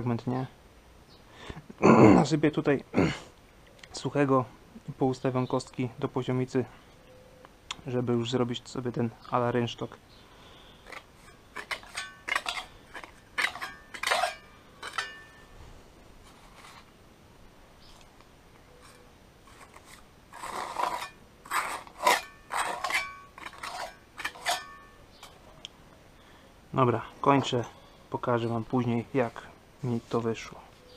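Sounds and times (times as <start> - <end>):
metal trowel scraping and clinking: 10.8 - 15.6, 18.7 - 25.3.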